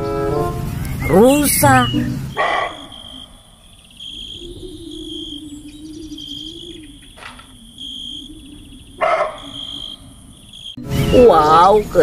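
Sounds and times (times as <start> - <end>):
insects chirping: 0.9 - 11.8.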